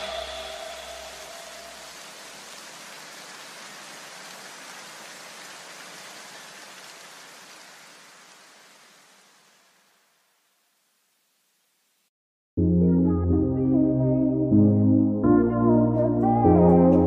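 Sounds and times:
rain-like noise hiss: 0.0 - 12.1.

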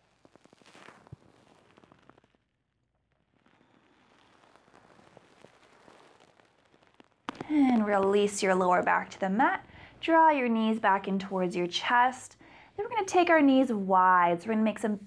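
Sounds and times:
faint rustling and crackles: 0.0 - 10.7.

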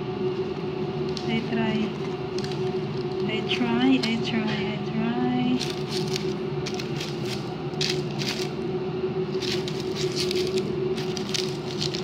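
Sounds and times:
steady low hum: 0.0 - 12.0
bread rolls crackling torn apart: 5.6 - 8.6, 9.4 - 12.0.

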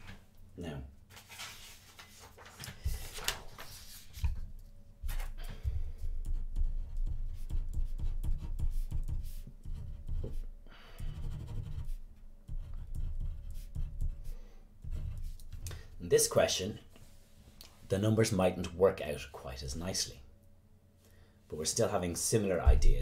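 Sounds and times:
pen scratching on paper: 6.0 - 15.6.

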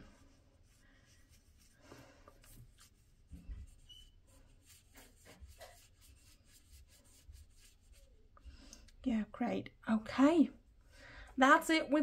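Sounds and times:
paintbrush tapping on paper: 4.8 - 6.2.

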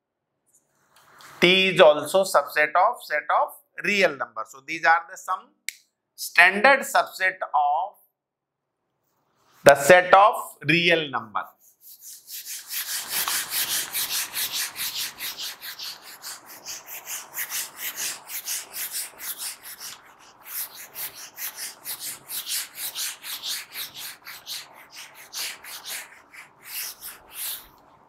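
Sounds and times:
eraser rubbing on whiteboard: 11.5 - 27.9.

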